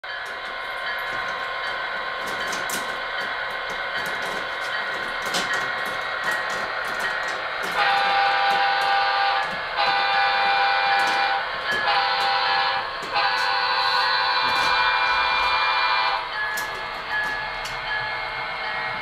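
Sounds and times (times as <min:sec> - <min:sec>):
model locomotive engine sound: 0:00.0 - 0:19.0
wheels clicking on track: 0:00.0 - 0:19.0
locomotive horn: 0:07.7 - 0:16.3.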